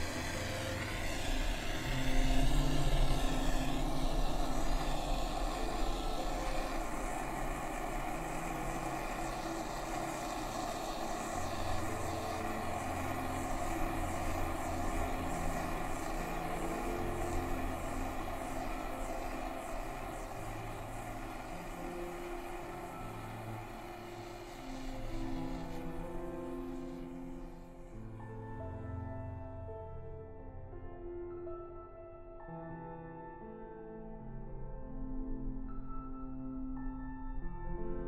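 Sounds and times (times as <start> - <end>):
torch flame hissing: 0.0 - 28.0.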